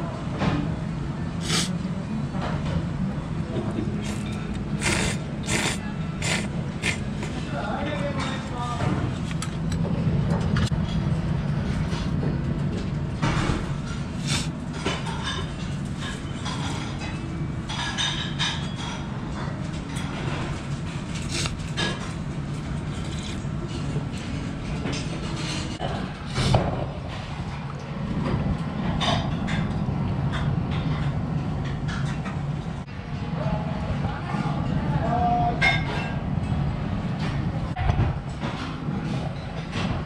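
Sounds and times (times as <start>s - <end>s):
restaurant room rumble: 0.0s - 40.0s
dishes clinking and clattering: 13.2s - 27.2s, 28.3s - 32.5s, 35.6s - 36.6s.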